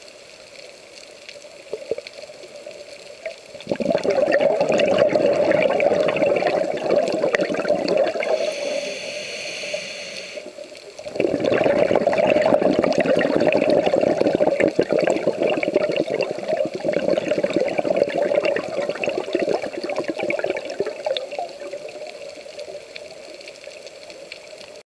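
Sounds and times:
exhaled bubbles rushing: 3.2s - 8.9s, 11.0s - 22.6s
regulator hissing inhale: 8.1s - 10.6s.

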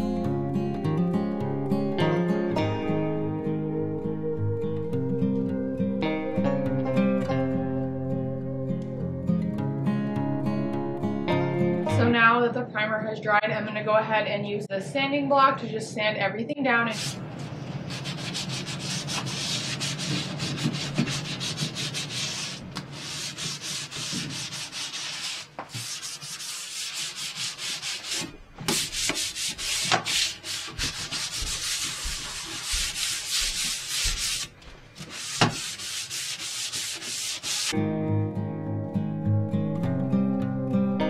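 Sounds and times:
sanding block scratching: 17.0s - 37.8s.

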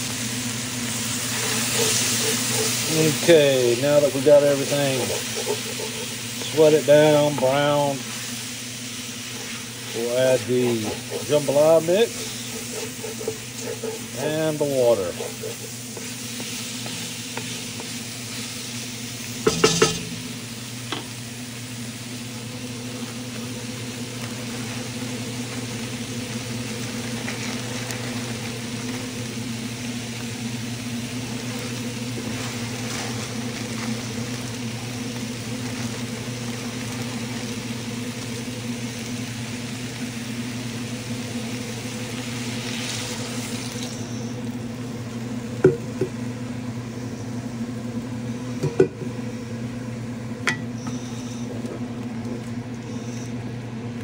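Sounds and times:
meat and rice sizzling: 0.0s - 54.0s
steady low hum: 0.0s - 54.0s
wooden spoon knocking pot: 19.5s - 20.3s.

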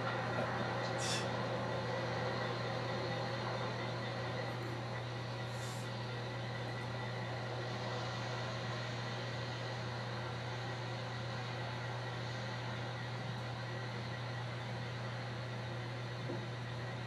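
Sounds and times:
low drone with hiss: 0.0s - 15.4s.

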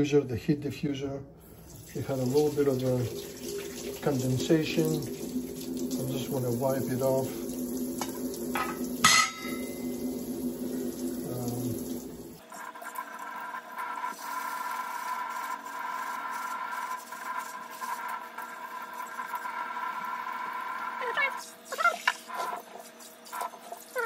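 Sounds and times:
kitchen tap running: 1.4s - 24.0s.

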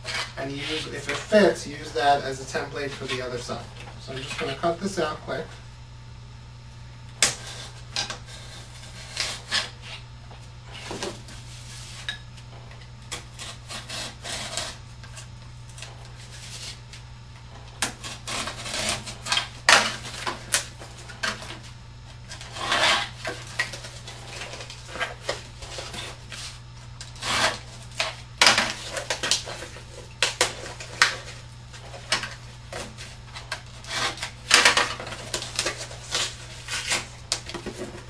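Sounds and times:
box cutter slicing cardboard: 7.2s - 10.0s, 13.1s - 14.8s, 17.8s - 21.7s, 22.3s - 38.0s.

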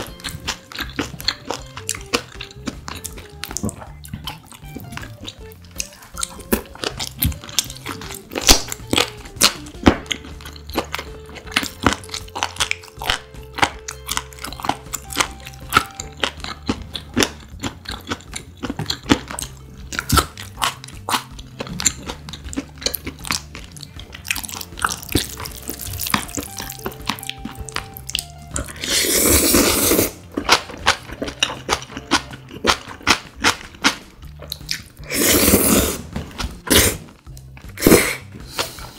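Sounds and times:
crunching and chewing: 0.0s - 38.9s
loud noodle slurp: 28.7s - 30.2s, 35.0s - 36.1s, 36.7s - 37.1s, 37.8s - 38.3s.

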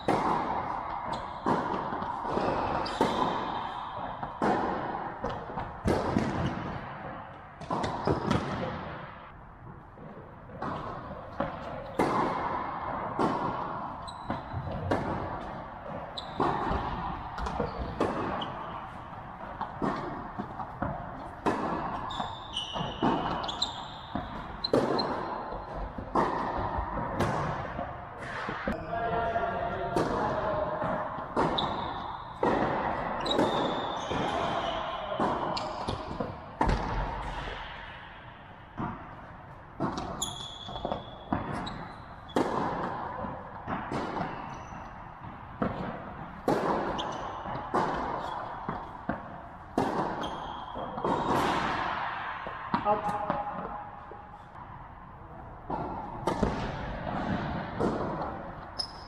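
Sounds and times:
tennis ball bouncing: 0.0s - 9.2s, 10.0s - 28.8s, 29.8s - 54.8s, 55.6s - 59.0s
tennis racket striking ball: 0.0s - 9.2s, 10.6s - 28.8s, 29.8s - 54.6s, 55.7s - 59.0s
shoe squeaks on court: 2.8s - 3.2s, 14.0s - 14.7s, 16.1s - 16.5s, 22.0s - 25.7s, 31.5s - 32.4s, 33.2s - 35.7s, 40.0s - 42.4s, 44.3s - 45.0s, 46.9s - 47.4s, 50.2s - 51.0s, 58.7s - 59.0s.

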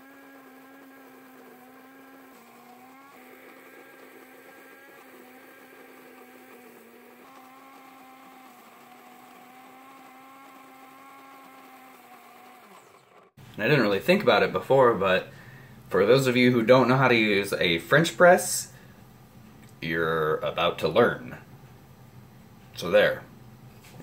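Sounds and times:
coffee grinder running: 0.0s - 13.5s.

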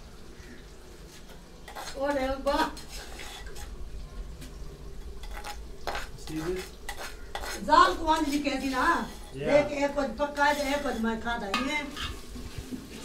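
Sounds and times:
metal spoon scraping a bowl: 1.7s - 3.8s, 5.1s - 9.4s, 10.0s - 12.3s.

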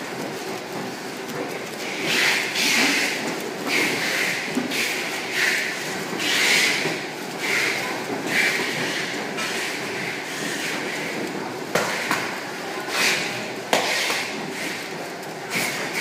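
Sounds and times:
conveyor belt clattering: 0.0s - 16.0s.

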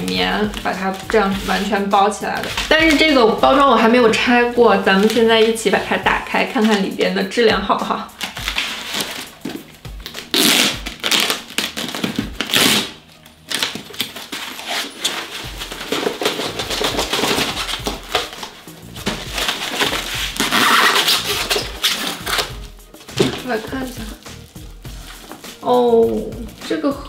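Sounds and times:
background music: 0.0s - 27.0s
foam wrapping rustling and tearing: 8.2s - 26.9s.

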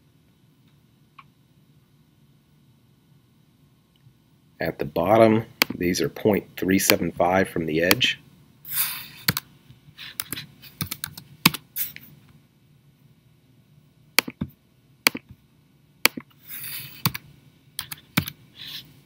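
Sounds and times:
keyboard typing: 9.2s - 9.5s, 10.1s - 11.6s, 16.9s - 17.2s, 17.8s - 18.4s.

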